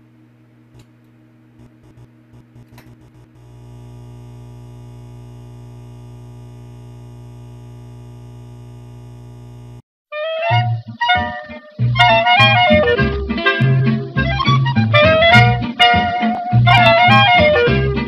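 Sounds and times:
steady electrical hum: 0.0 - 9.8
sharp electrical clicks: 0.7 - 9.8.

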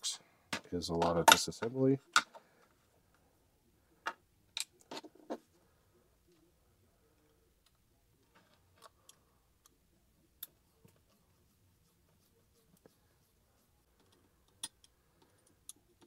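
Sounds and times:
faint clicks of driver and parts: 0.5 - 3.2, 7.1 - 9.8, 13.9 - 16.0.

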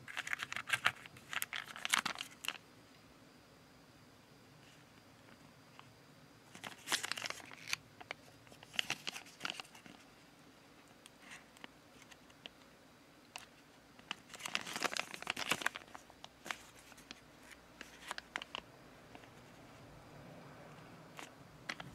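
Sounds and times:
plastic tray crinkling and clicking: 17.8 - 19.3, 21.2 - 21.9.

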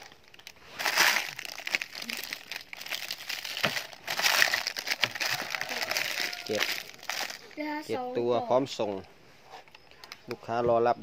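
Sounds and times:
plastic bags crinkling: 0.0 - 7.9.

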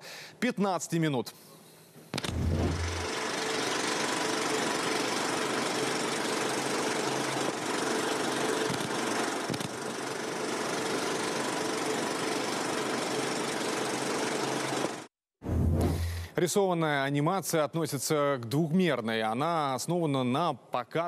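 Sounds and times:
projector mechanical running: 2.2 - 15.1.

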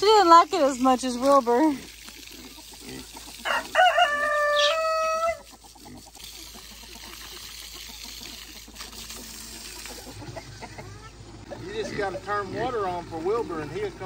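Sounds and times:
water spraying from hose: 0.0 - 11.0
rooster crowing: 3.4 - 5.5.

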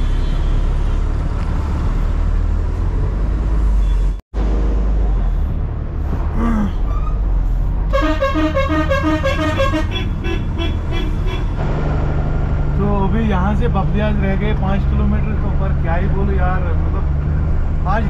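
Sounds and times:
truck engine rumbling: 0.0 - 18.0
vehicle horn short toots: 7.9 - 11.5.

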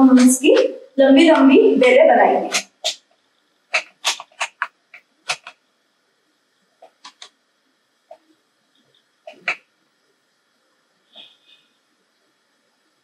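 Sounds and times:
hands kneading dough: 3.7 - 5.6.

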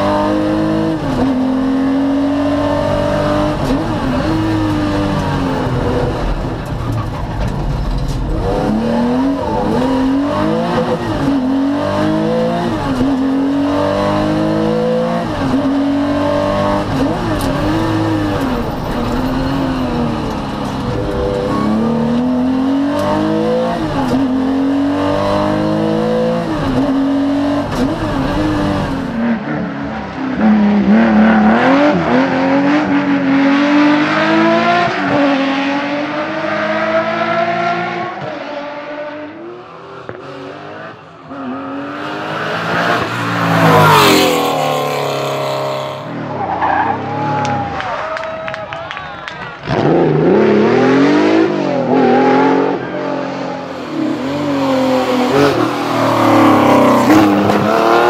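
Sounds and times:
car accelerating past: 49.6 - 58.0.

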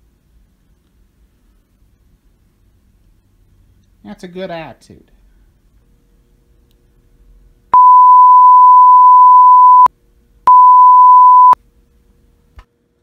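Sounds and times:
censor bleep tone: 7.8 - 9.9, 10.5 - 11.6.

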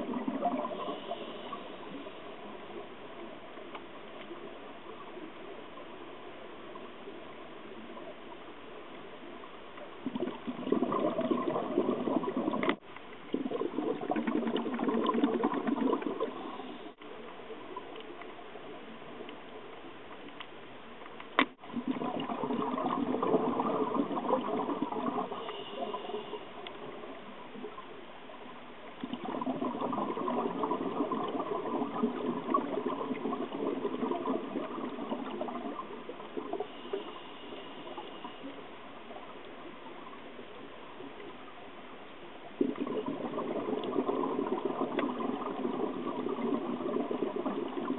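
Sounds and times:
underwater exhaled bubbles rumbling: 0.0 - 3.6, 9.8 - 17.0, 21.6 - 40.4, 42.4 - 47.9.

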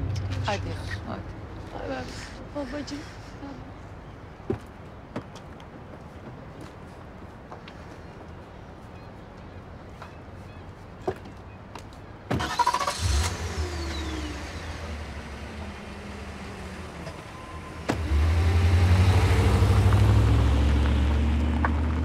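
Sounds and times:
car engine running: 12.8 - 22.0.

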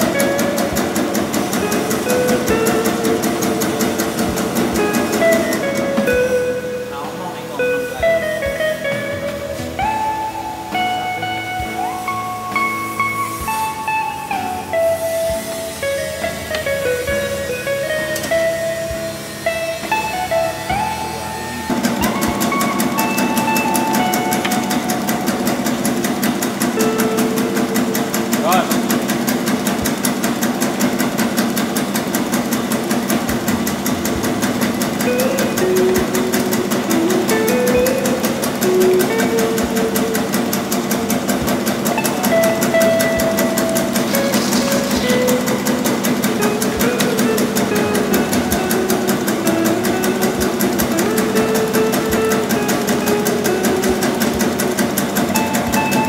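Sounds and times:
fast machine clatter: 0.0 - 6.4, 21.7 - 56.0
motor hum: 14.6 - 56.0.

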